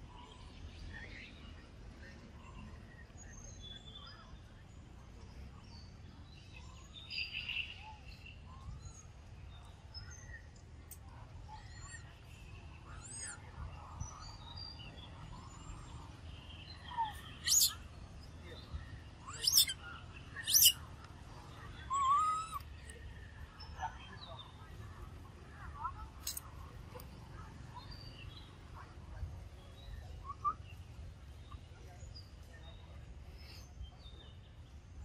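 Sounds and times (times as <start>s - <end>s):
bird chirps and whistles: 17.1s - 17.8s, 19.3s - 19.8s, 20.4s - 20.8s
loud sharp high bird call: 17.4s - 17.7s, 19.4s - 19.7s, 20.4s - 20.8s.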